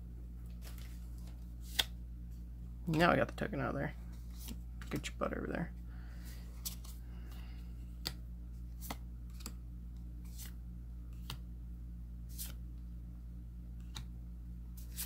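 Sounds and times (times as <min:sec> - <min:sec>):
steady low hum: 0:00.0 - 0:15.0
cards flicking: 0:00.6 - 0:02.0.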